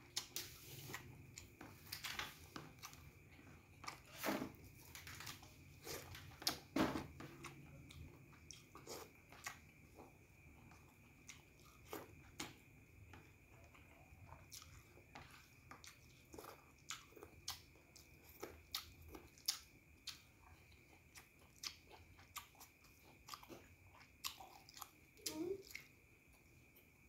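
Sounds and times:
chewing and lip smacks: 7.4 - 9.8, 13.6 - 25.9.

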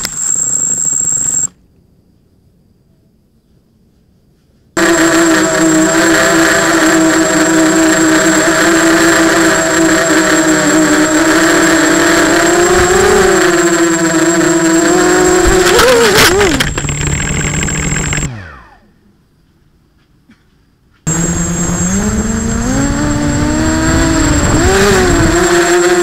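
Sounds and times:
drone motors whining: 0.0 - 1.5, 4.8 - 18.9, 21.1 - 26.0
motors winding down: 4.8 - 18.9, 21.1 - 26.0.

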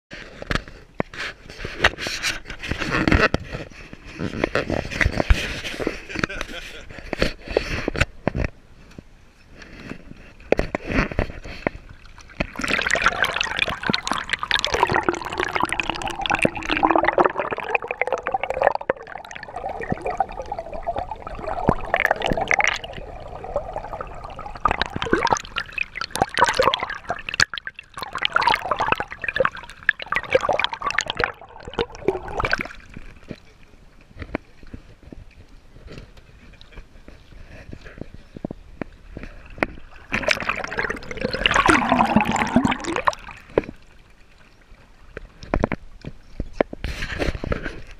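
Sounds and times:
underwater sloshing and gurgling: 9.5 - 47.9.

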